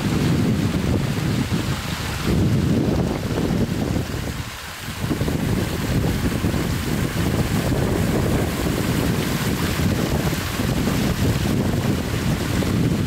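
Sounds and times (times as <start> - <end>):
waterfall rushing over boulders: 0.0 - 13.0
wind buffeting microphone: 0.0 - 13.0.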